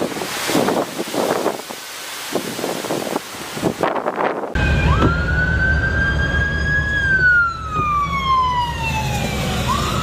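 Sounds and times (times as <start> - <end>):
emergency vehicle siren wailing: 4.6 - 10.0.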